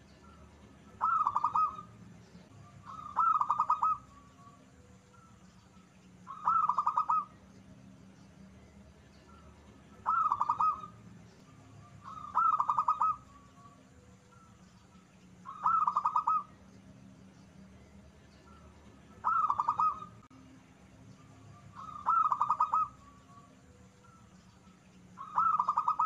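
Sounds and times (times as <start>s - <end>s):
dove cooing: 0.2s - 2.0s, 2.8s - 4.9s, 6.2s - 7.5s, 9.3s - 11.1s, 11.8s - 14.6s, 15.4s - 16.7s, 19.2s - 20.3s, 21.7s - 24.3s, 25.2s - 26.0s.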